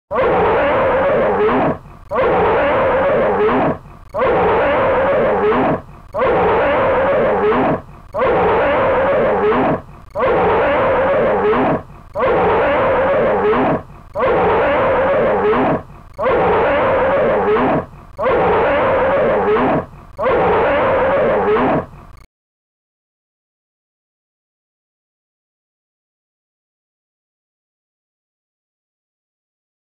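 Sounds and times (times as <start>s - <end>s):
bear roaring: 0.1s - 22.0s.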